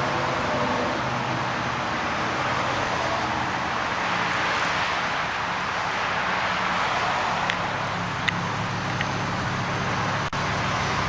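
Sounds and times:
car engine idling: 5.0s - 11.0s.

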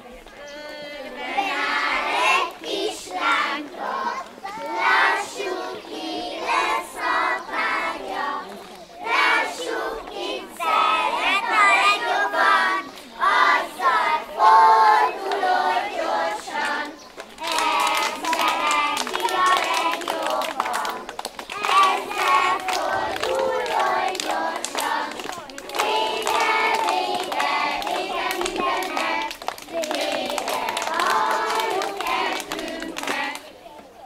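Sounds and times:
children singing in unison: 0.7s - 33.4s
hand claps: 16.6s - 33.5s.

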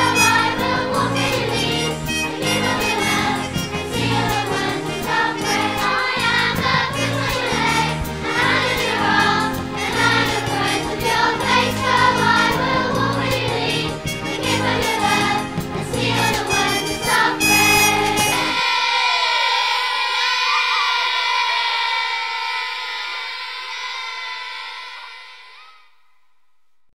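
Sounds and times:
group singing with instruments: 0.0s - 19.0s.

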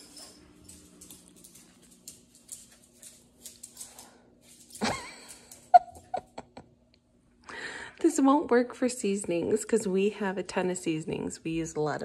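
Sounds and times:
dog claws ticking on tile: 0.0s - 5.8s.

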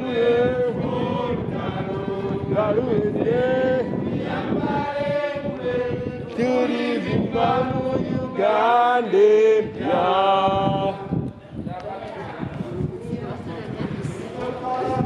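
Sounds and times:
protesters chanting: 0.0s - 11.2s.

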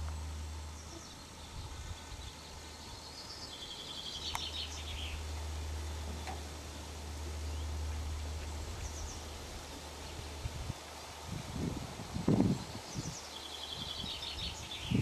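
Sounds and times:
wind rumbling on microphone: 0.0s - 3.0s, 7.0s - 15.0s
small bird chirping: 0.0s - 10.9s, 12.4s - 15.0s.

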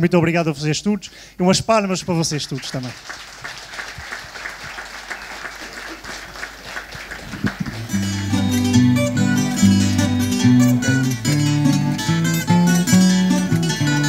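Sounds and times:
audience applauding: 2.6s - 8.2s
acoustic guitars strumming: 7.5s - 14.0s.

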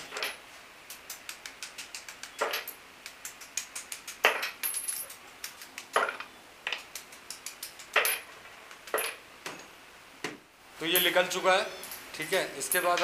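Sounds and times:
magnet pieces clacking onto wood: 0.9s - 9.2s.

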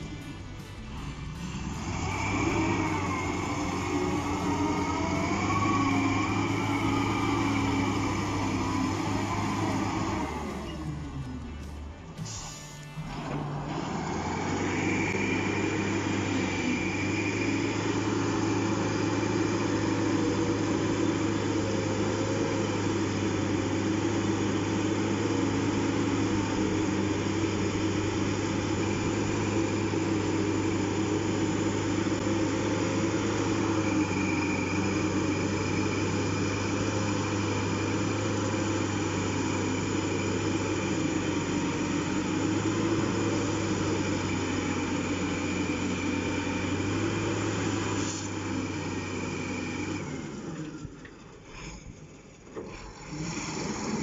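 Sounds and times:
faint high whine: 0.0s - 24.3s
bulldozer pushing sand: 0.0s - 54.0s
diesel engine running: 0.0s - 54.0s.

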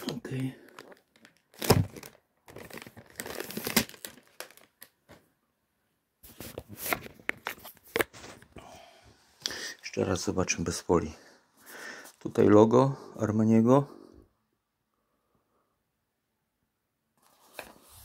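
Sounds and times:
cellophane wrap tearing and rustling: 0.6s - 5.0s.

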